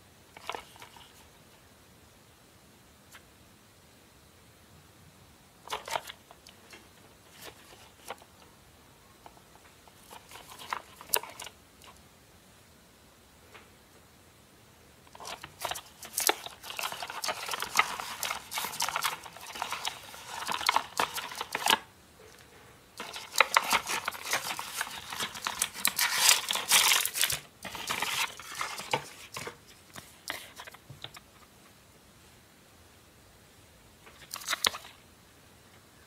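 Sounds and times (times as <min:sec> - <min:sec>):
cardboard packaging rustling: 0:09.2 - 0:11.6, 0:15.1 - 0:21.9, 0:23.0 - 0:31.3.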